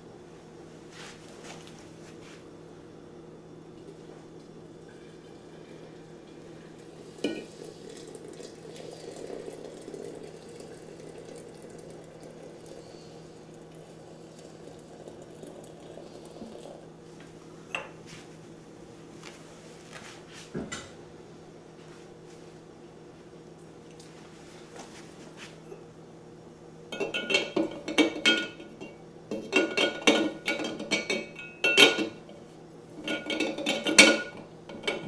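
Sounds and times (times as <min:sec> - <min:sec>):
steady low hum: 0:00.0 - 0:35.0
water pouring into mug: 0:04.8 - 0:16.9
crockery clinking: 0:27.0 - 0:32.2.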